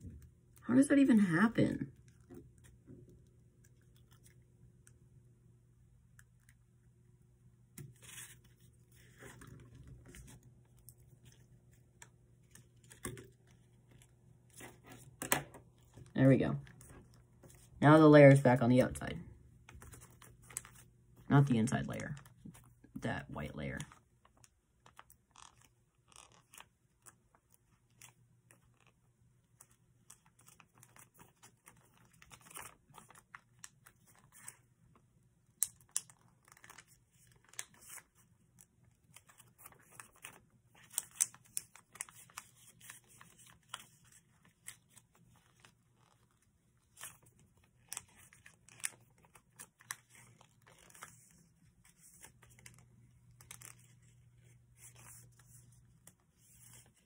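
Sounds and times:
paper crinkling and snapping: 7.8 - 16.1, 19.6 - 20.9, 23.8 - 57.0.

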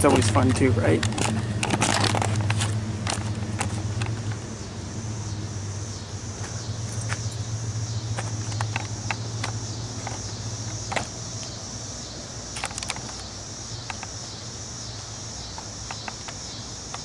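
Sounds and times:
crickets chirring: 0.0 - 17.0
light clicks: 8.2 - 11.5.

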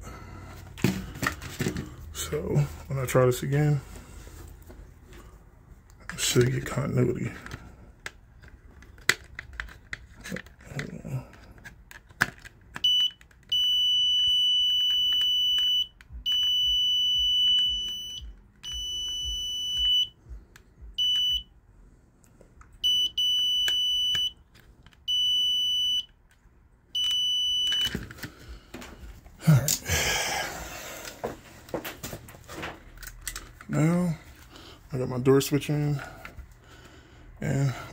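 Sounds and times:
multimeter beeping: 12.8 - 20.2, 20.9 - 21.5, 22.8 - 24.4, 25.0 - 26.2, 26.9 - 28.0.

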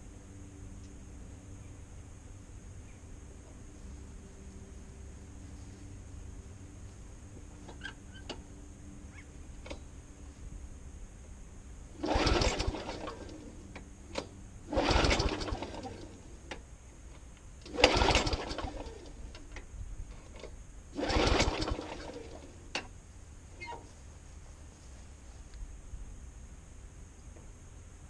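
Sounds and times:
engine turning over: 11.9 - 16.6, 17.6 - 19.6, 20.2 - 22.9
lawnmower recoil starter pulls: 12.0 - 16.6, 17.6 - 22.9, 23.6 - 23.9.

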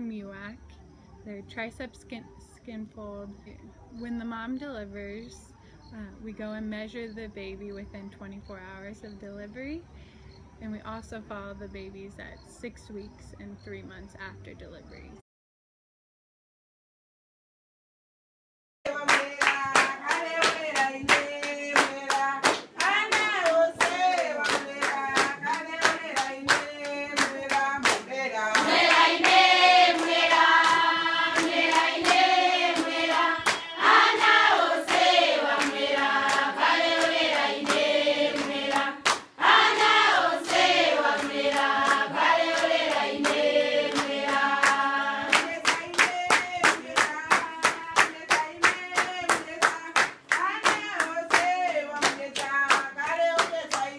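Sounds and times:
group of voices singing: 18.9 - 50.0
hand clapping: 18.9 - 53.9.

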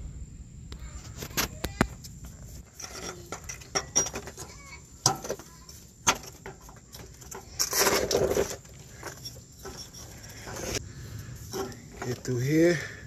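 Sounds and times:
scraping rustle: 0.8 - 13.0
metal parts clicking and knocking: 2.7 - 10.8.

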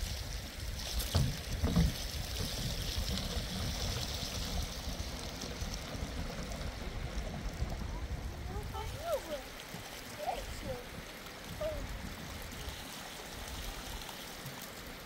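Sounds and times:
water pouring into plastic cans: 0.0 - 7.1.

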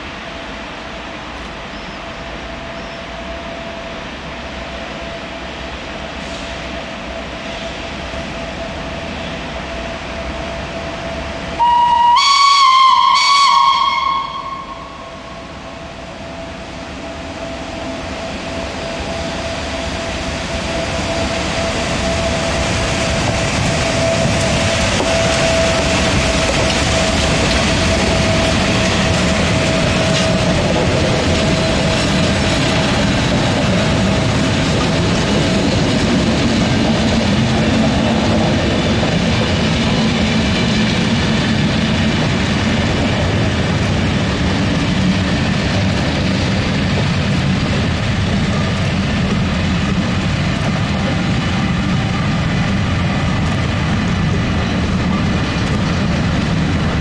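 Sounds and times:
electric locomotive rumbling past: 0.0 - 57.0
train whistle blast: 11.6 - 16.6.

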